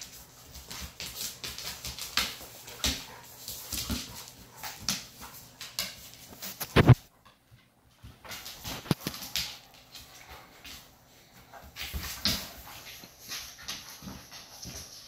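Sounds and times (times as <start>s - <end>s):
claws clicking on floor: 0.0s - 6.9s, 8.0s - 10.8s.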